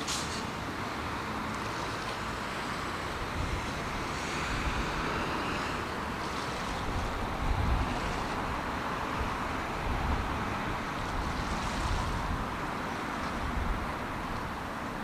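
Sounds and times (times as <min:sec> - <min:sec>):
outdoor noise: 0:00.0 - 0:15.0
wind buffeting microphone: 0:03.1 - 0:14.7.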